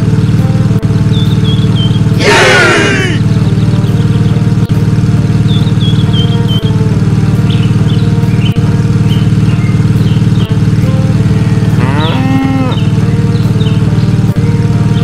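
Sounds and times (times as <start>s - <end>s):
engine drone: 0.0s - 15.0s
bird chirps: 1.1s - 2.2s, 5.3s - 6.8s, 7.4s - 10.6s, 11.8s - 14.2s
cow mooing: 2.2s - 3.2s, 11.6s - 12.9s.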